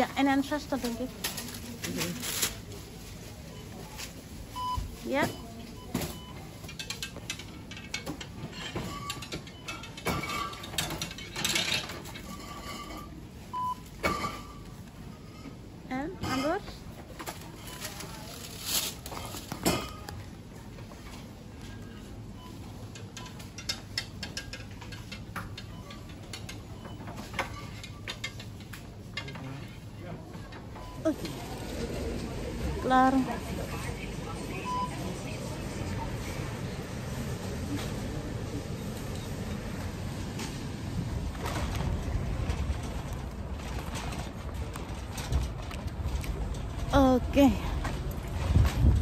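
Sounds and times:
paper bag rustling: 0.8 - 4.5, 17.3 - 19.6.

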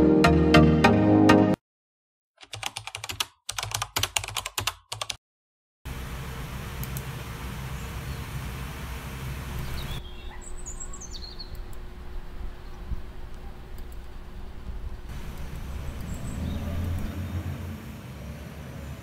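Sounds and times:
fast typing on keyboard: 2.4 - 5.2
bird chirping: 9.5 - 11.8, 15.2 - 17.4.

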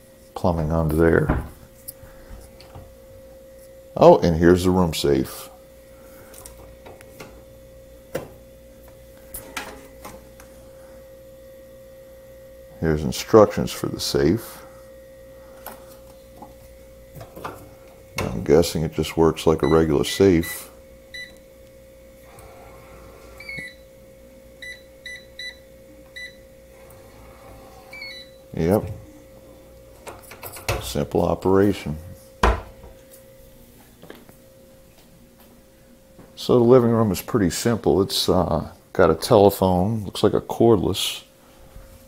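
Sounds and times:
steady hum: 0.0 - 42.0
keypad beeps: 19.6 - 21.4, 24.6 - 25.6.

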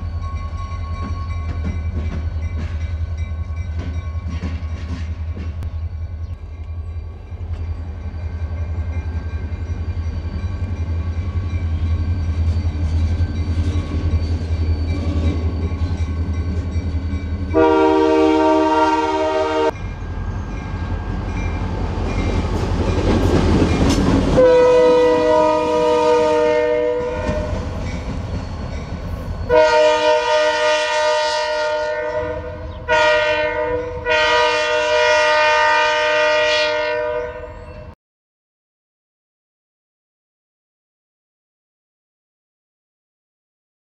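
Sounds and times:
train wheels on rails: 0.0 - 31.6
diesel locomotive engine rumble: 0.0 - 36.0
train air horn blasts: 17.5 - 19.8, 24.3 - 27.8, 29.5 - 38.0.

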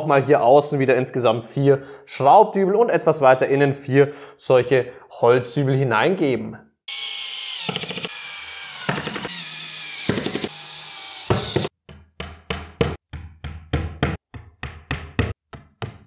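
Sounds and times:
cordless drill driving screws: 6.9 - 11.7.

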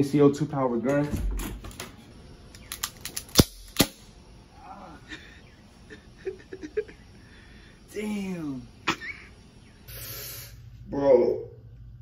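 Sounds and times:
bb pistol shots: 3.2 - 4.1.

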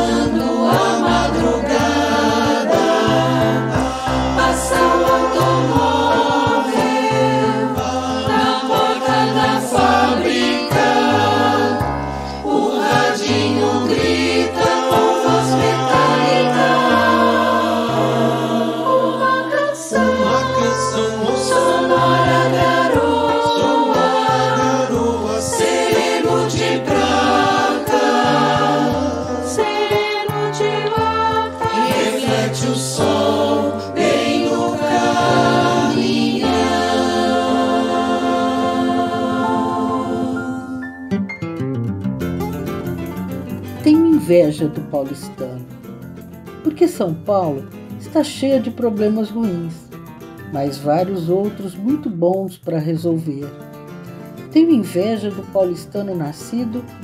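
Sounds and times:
choir singing: 0.0 - 41.0.

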